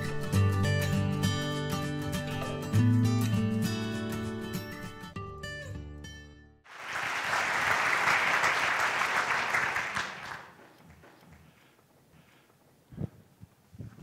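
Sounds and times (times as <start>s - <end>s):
audience applauding: 6.7s - 11.4s.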